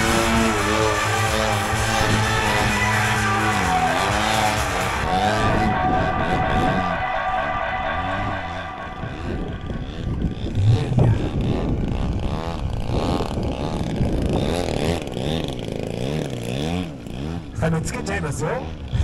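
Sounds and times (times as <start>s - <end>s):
model aircraft engine buzzing: 0.0s - 5.1s, 9.1s - 18.9s.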